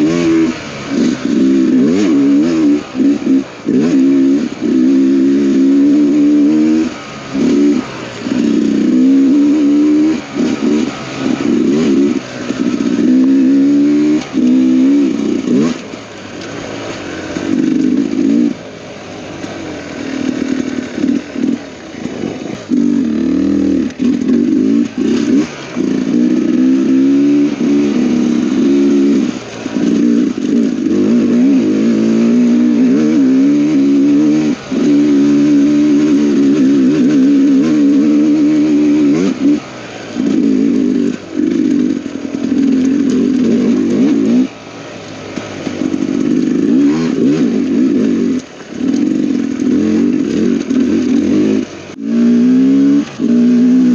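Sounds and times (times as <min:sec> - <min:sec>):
dirt bike engine revving: 0:00.0 - 0:53.9.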